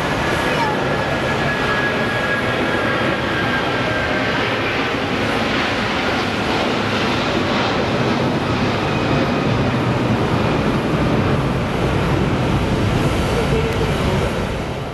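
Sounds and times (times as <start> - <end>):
jet engines roaring overhead: 0.0 - 14.9.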